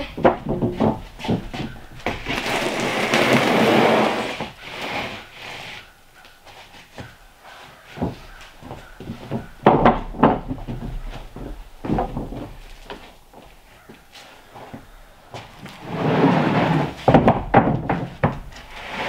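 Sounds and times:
footsteps on wooden boards: 0.0s - 19.0s
panel scraping onto stack: 15.8s - 19.0s.

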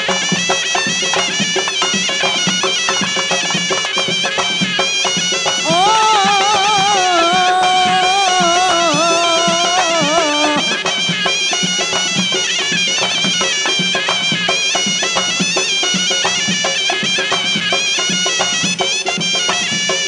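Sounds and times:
bagpipe melody: 0.0s - 20.0s
drum beat: 0.0s - 20.0s.

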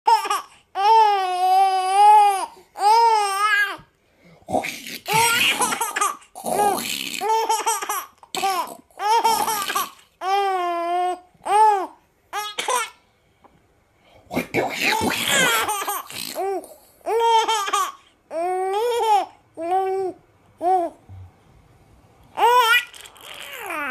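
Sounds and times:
baby laughing and squealing: 4.9s - 13.0s, 14.9s - 21.0s, 22.4s - 23.9s.

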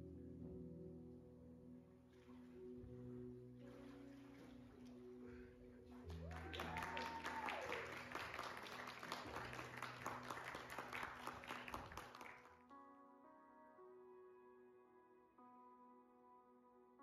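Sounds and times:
soft background music: 0.0s - 17.0s
audience applauding and cheering: 6.0s - 12.5s
person whooping: 6.2s - 8.1s.

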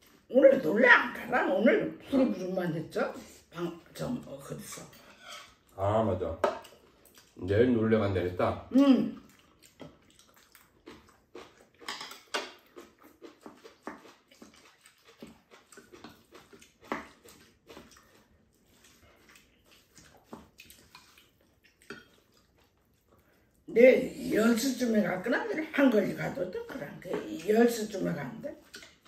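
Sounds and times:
people chewing: 0.0s - 1.4s, 3.2s - 7.7s, 8.7s - 29.0s
spoons scraping ceramic bowls: 4.5s - 5.6s.

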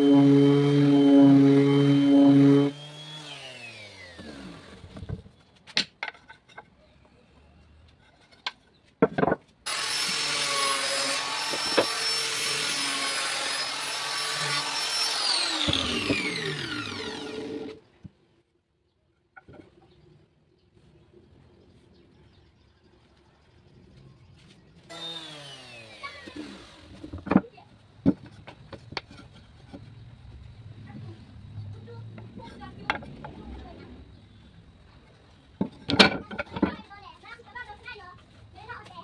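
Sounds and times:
angle grinder whine: 0.0s - 4.7s, 9.7s - 17.8s, 24.9s - 27.0s.

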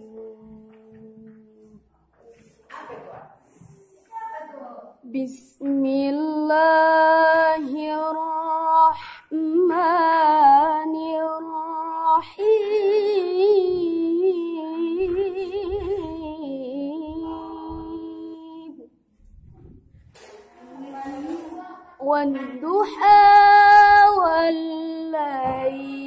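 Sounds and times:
woman chanting melodically: 0.0s - 1.8s, 5.0s - 18.9s, 22.0s - 26.0s.

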